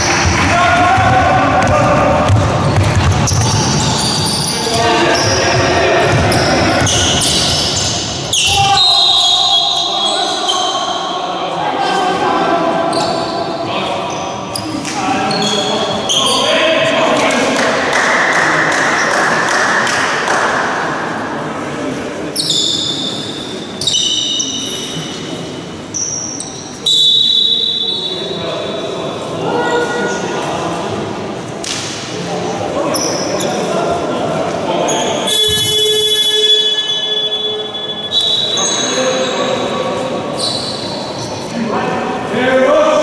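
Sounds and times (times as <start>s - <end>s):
hum of voices: 0.0s - 25.9s, 27.6s - 43.0s
basketball bouncing on floor: 0.2s - 3.8s.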